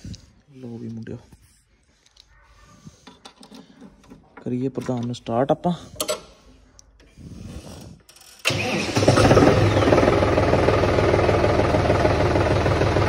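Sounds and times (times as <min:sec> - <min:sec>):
diesel engine cranking and idling: 0:08.4 - 0:13.0.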